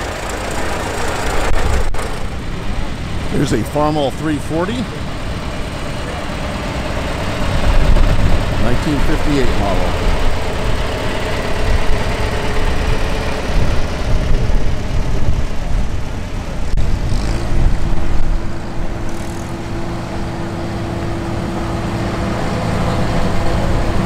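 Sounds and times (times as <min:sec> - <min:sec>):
other tractor engines: 0:00.0 - 0:24.0
tractor engine running: 0:00.0 - 0:24.0.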